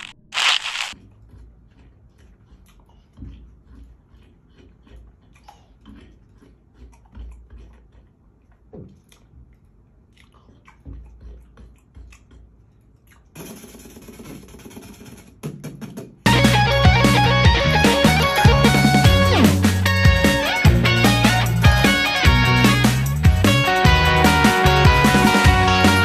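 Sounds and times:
person chewing watermelon: 0:00.0 - 0:13.4.

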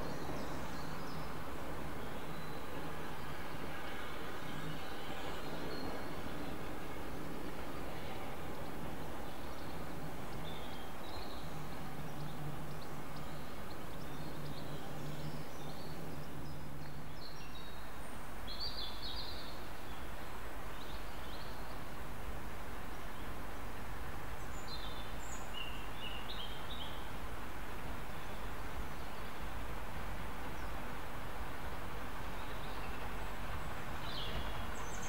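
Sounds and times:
birds chirping: 0:00.0 - 0:22.0, 0:31.9 - 0:35.0.

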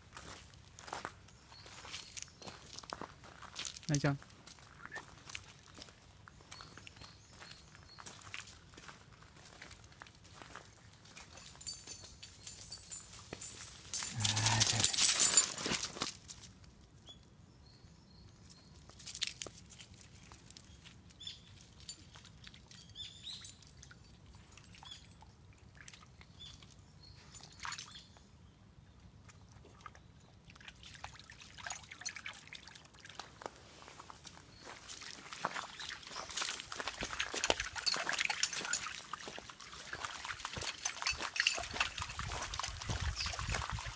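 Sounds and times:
dog splashing in stream: 0:35.0 - 0:43.9.

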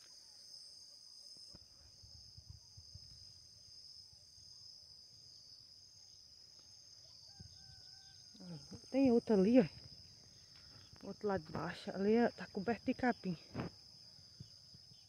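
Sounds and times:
insects trilling: 0:00.0 - 0:15.0
wind rumble on microphone: 0:02.0 - 0:03.3.

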